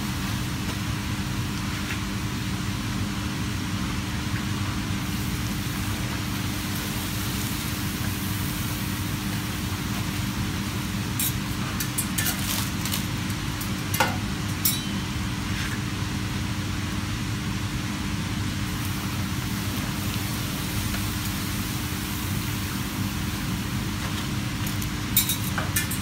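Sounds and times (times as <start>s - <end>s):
frying in hot oil sizzle: 0.0s - 26.0s.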